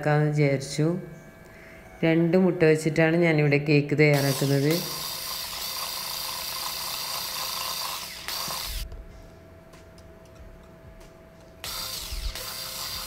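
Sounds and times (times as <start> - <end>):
electric hand mixer whining: 4.2 - 8.9, 11.6 - 13.0.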